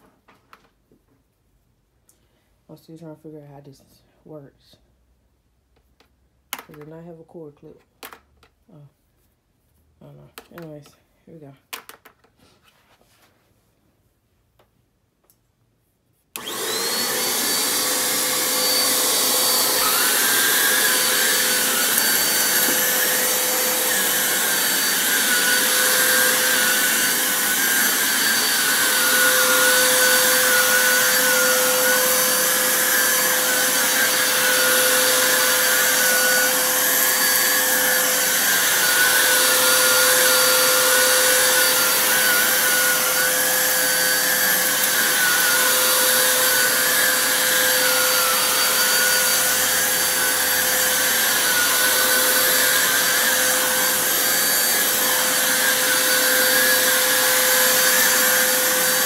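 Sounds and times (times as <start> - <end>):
vacuum cleaner running: 16.4 - 59.0.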